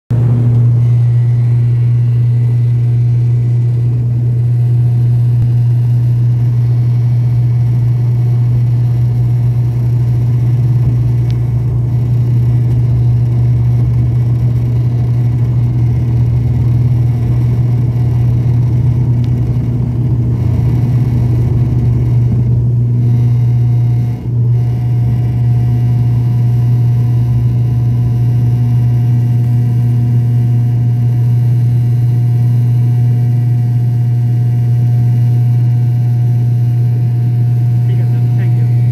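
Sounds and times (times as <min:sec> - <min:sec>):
propeller engine drone in cabin: 0:00.1 - 0:38.9.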